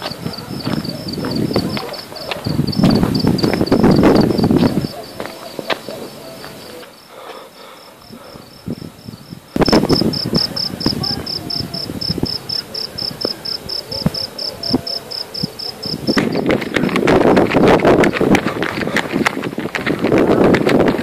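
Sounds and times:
cricket chirping: 0:00.0 - 0:19.2.

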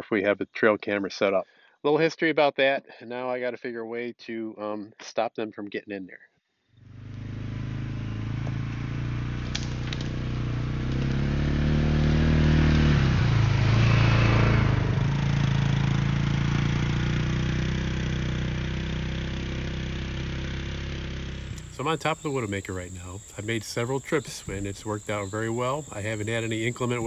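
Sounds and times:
utility vehicle engine passing: 0:06.8 - 0:27.0.

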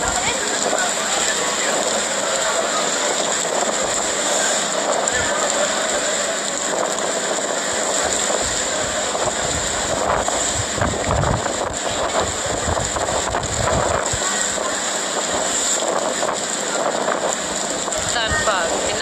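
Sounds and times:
wind gusts buffeting microphone: 0:00.0 - 0:02.5, 0:03.2 - 0:19.0
storm wind blowing: 0:06.6 - 0:19.0.

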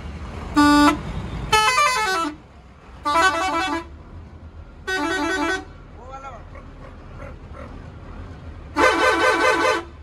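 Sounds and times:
bus air horn playing tune: 0:00.5 - 0:02.4, 0:03.0 - 0:04.0, 0:04.8 - 0:05.7, 0:08.7 - 0:10.0.

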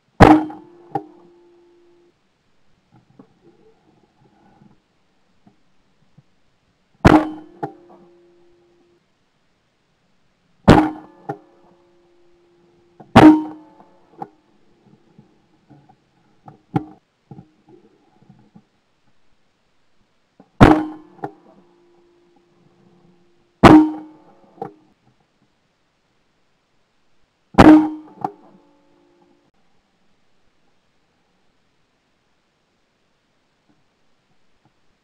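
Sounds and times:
sharp crack: 0:00.2 - 0:01.3, 0:07.0 - 0:08.1, 0:10.7 - 0:11.8, 0:13.0 - 0:14.4, 0:20.6 - 0:21.6.

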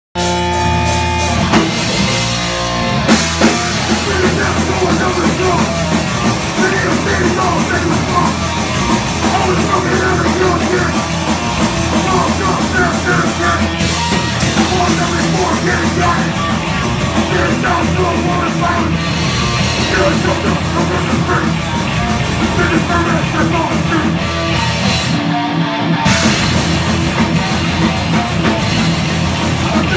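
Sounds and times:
punk band playing live: 0:00.2 - 0:29.9
vocalist shouting: 0:06.5 - 0:11.0, 0:12.0 - 0:13.8.

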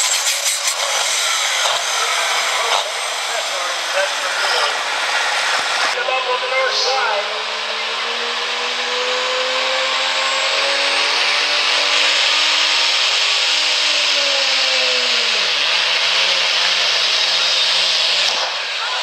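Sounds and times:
turbo hissing: 0:00.0 - 0:06.0
diesel engine at high revs: 0:00.0 - 0:19.0.

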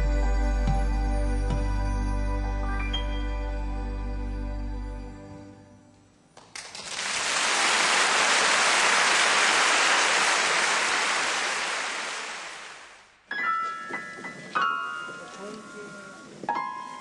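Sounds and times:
piano music: 0:00.0 - 0:05.6, 0:13.3 - 0:17.0
audience applause: 0:06.4 - 0:13.1.

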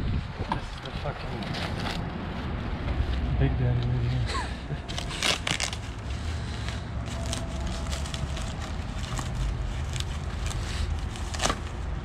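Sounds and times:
foam packing wrap crinkling: 0:04.8 - 0:12.0.

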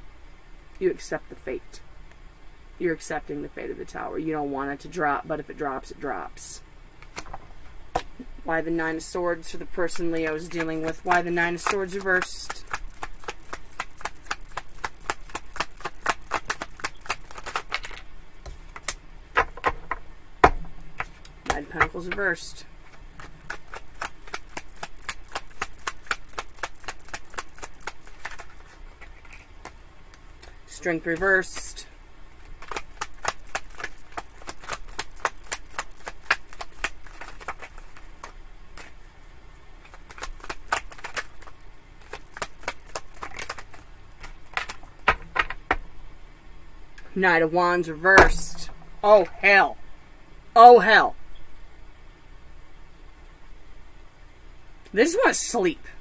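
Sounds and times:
cards being shuffled: 0:09.4 - 0:20.0, 0:21.0 - 0:31.8, 0:32.4 - 0:39.0, 0:39.8 - 0:45.8.

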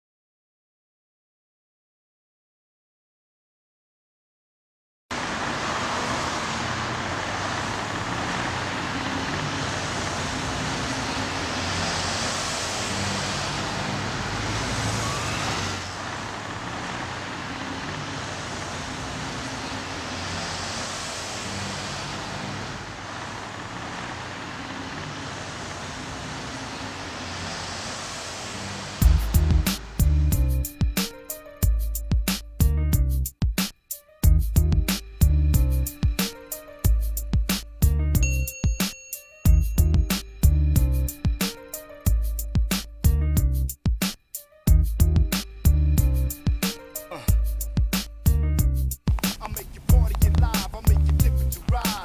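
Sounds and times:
cars driving past: 0:05.1 - 0:31.6
music with a beat: 0:29.0 - 0:52.0.

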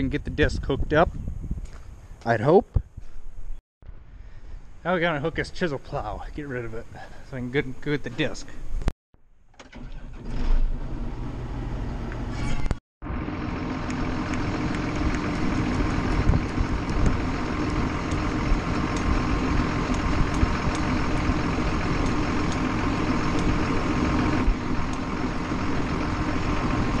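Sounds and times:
diesel tractor engine idling: 0:13.0 - 0:27.0.

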